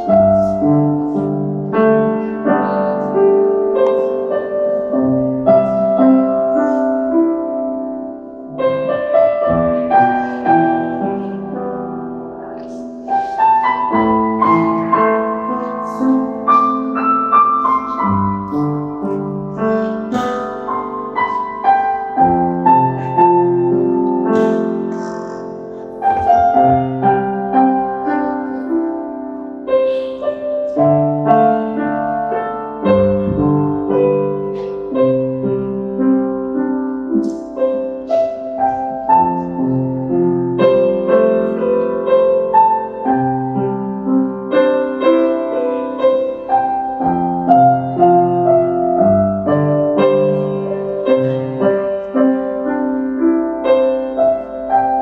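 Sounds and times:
grand piano melody: 0:00.0 - 0:55.0.

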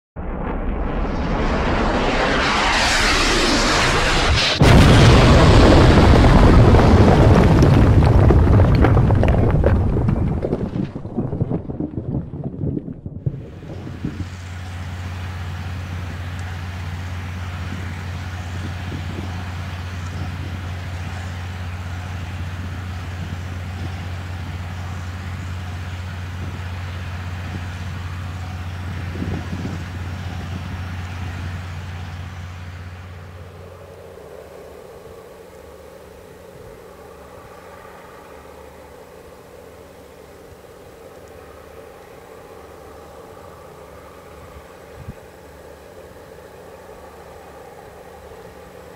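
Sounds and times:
hissing whoosh: 0:00.2 - 0:06.6
deep rumbling boom: 0:00.2 - 0:14.4
heavy diesel engines droning: 0:13.4 - 0:48.9.

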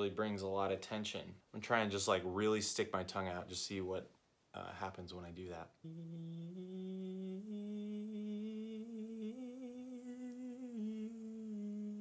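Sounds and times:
man singing vocal scale: 0:04.6 - 0:12.0.

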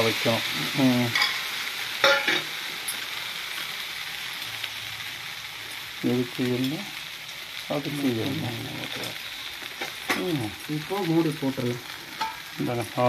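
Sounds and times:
batter sizzling on hot griddle: 0:00.0 - 0:13.0
person speaking: 0:07.7 - 0:09.2.

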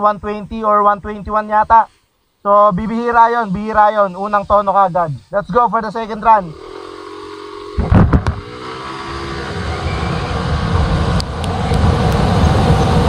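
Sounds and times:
scooter engine accelerating: 0:05.9 - 0:13.0
sharp knocks: 0:07.8 - 0:08.5
wind noise: 0:07.8 - 0:08.6, 0:09.4 - 0:13.0.

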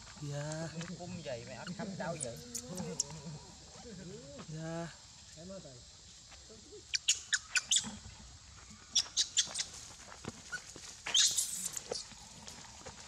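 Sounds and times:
macaques squeaking: 0:01.1 - 0:04.3, 0:06.9 - 0:08.0, 0:08.9 - 0:09.8, 0:11.1 - 0:12.1
monkey squealing: 0:01.6 - 0:03.4, 0:11.1 - 0:12.0.

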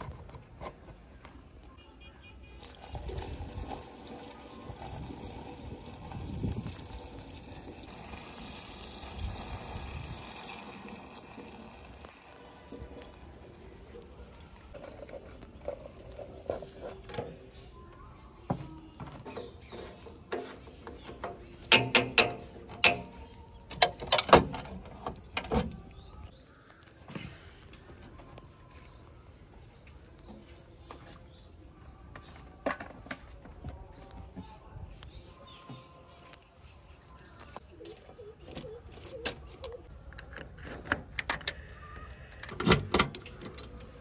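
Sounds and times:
loose earth pouring: 0:02.4 - 0:16.2.

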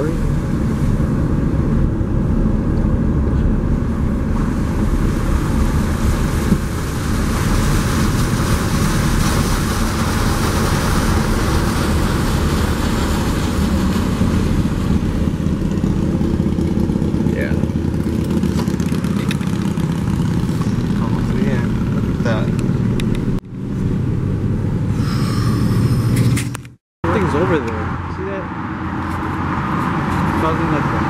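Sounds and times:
car engine running: 0:00.0 - 0:28.2
tyres rolling on wet road: 0:04.2 - 0:23.4.

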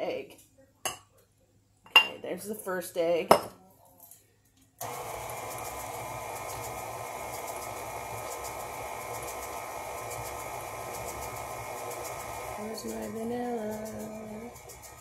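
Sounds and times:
stand mixer running: 0:04.8 - 0:15.0.

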